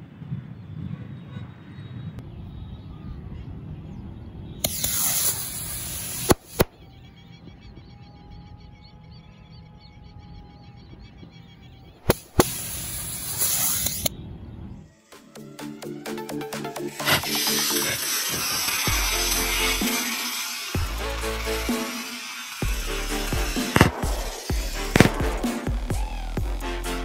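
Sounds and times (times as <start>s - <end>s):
firework bangs: 4.6s - 6.7s, 12.0s - 14.0s, 17.0s - 26.6s
rocket hissing whistle: 4.6s - 6.7s, 12.1s - 14.1s, 16.9s - 27.0s.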